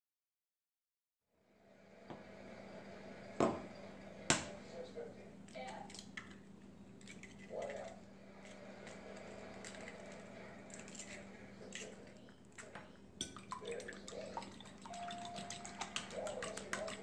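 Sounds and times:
fork clicking against bowl: 15.2s - 17.0s.

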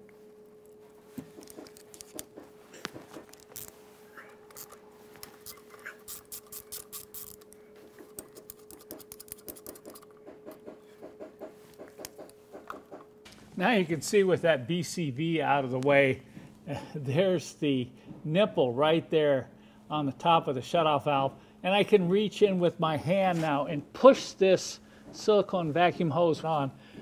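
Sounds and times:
faint steady hum: 0.0s - 27.0s.

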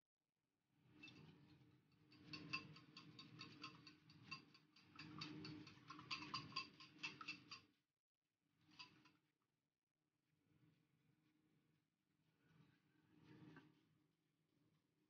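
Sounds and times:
whisk clicking in bowl: 2.1s - 7.7s.

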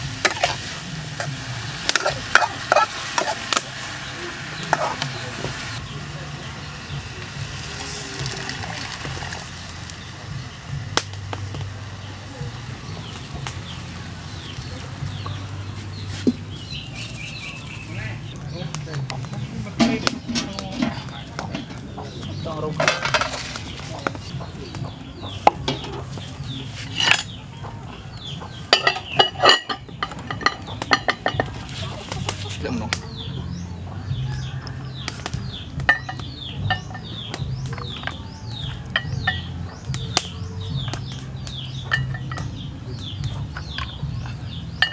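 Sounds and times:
food sizzling in a wok: 0.0s - 17.8s
birds chirping: 0.0s - 44.9s
dishes clinking against metal pot: 0.2s - 3.7s, 19.8s - 24.2s, 25.3s - 26.2s, 26.9s - 27.4s, 28.4s - 31.7s, 35.9s - 38.2s, 38.9s - 39.6s, 41.8s - 42.6s, 43.5s - 44.9s
water pouring into a pan: 7.4s - 9.9s.

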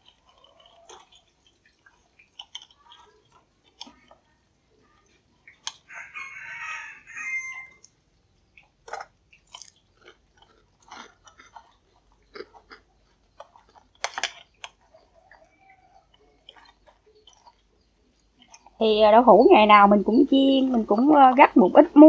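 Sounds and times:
sticky squishes of mixing batter: 0.0s - 22.0s
rooster crowing: 5.9s - 7.9s.

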